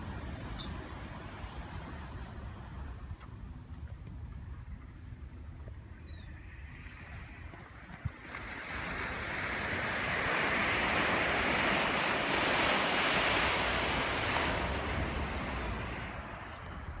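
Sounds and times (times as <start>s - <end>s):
ocean wave breaking: 6.7s - 17.0s.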